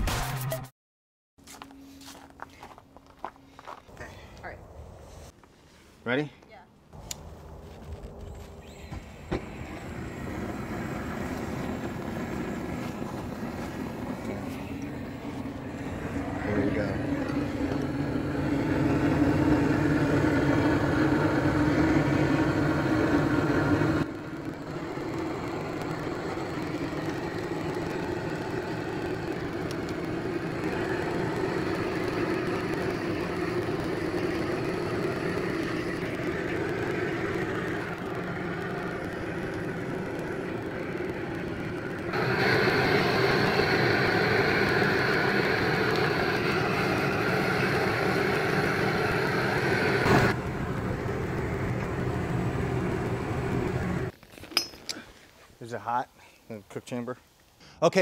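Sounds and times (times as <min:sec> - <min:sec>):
propane torch roaring: 0:06.9 - 0:55.0.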